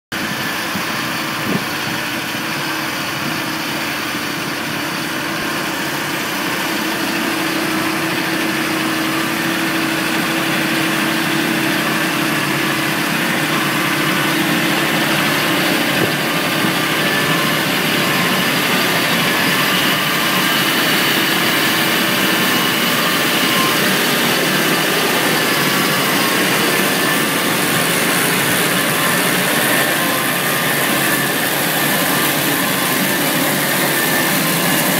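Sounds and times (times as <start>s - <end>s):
tractor engine drone: 0.1s - 34.9s
mechanical whine: 0.2s - 34.9s.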